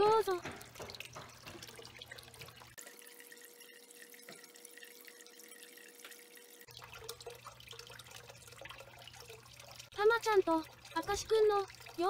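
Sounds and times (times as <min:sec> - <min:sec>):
water trickling and dripping: 0:00.0 - 0:12.0.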